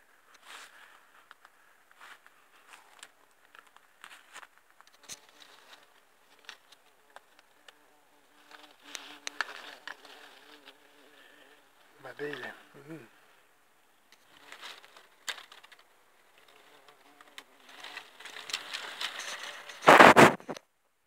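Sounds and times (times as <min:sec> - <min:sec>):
dry leaves and twigs crackling: 0:00.2 - 0:12.6, 0:14.1 - 0:20.0
faint insect buzz: 0:04.1 - 0:20.6.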